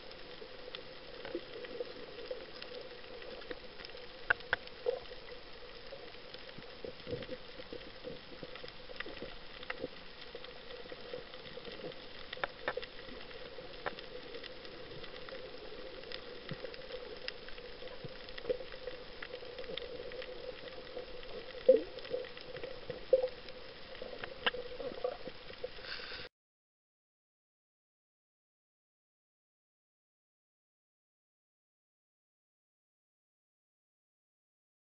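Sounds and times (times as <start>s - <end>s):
crackles and sharp clicks: 0.0s - 26.3s
underwater hiss: 25.7s - 26.3s.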